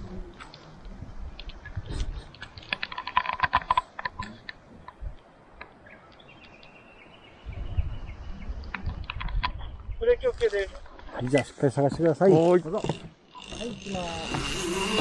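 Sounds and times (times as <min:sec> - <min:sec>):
carabiner rattling on zipline cable: 0:01.6 - 0:04.4.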